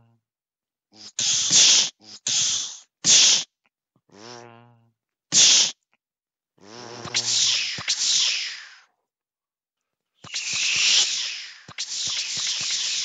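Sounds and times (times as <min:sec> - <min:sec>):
mouth hissing bursts: 0:00.9 - 0:03.6, 0:05.3 - 0:05.8, 0:06.6 - 0:08.9, 0:10.2 - 0:13.0.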